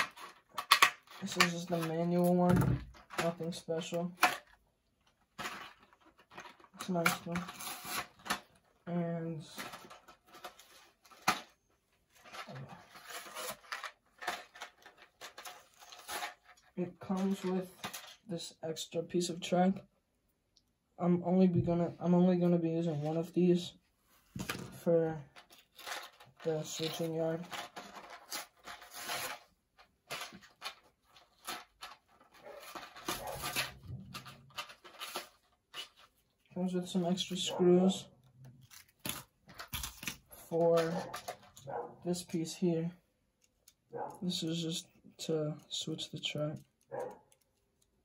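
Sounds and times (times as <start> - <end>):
paper rustling: 5.1 - 8.7, 9.4 - 18.3, 24.1 - 36.4, 38.5 - 41.8
plastic packaging crinkling: 25.3 - 36.5, 38.4 - 41.7.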